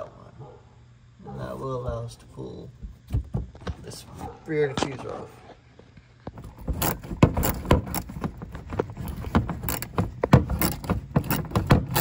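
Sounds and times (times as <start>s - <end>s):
socket ratchet clicking: 9.2s - 12.0s.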